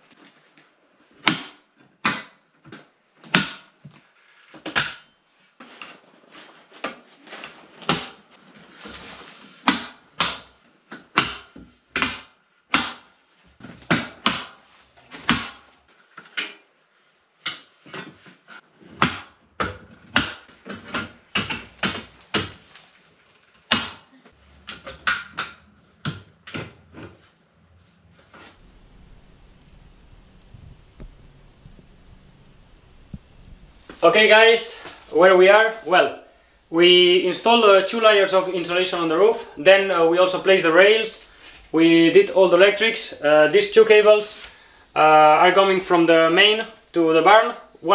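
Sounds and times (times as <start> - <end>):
short scraping hiss: 28.6 - 35.2.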